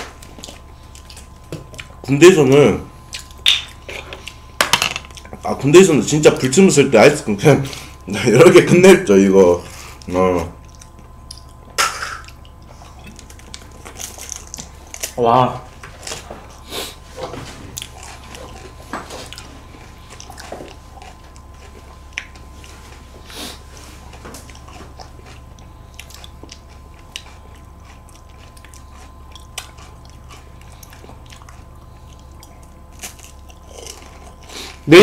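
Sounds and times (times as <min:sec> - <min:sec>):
chewing: 0:00.1 - 0:02.0, 0:03.0 - 0:04.5, 0:10.0 - 0:15.2, 0:15.8 - 0:34.8
crunching wafer cone: 0:13.1 - 0:16.6, 0:17.7 - 0:34.9.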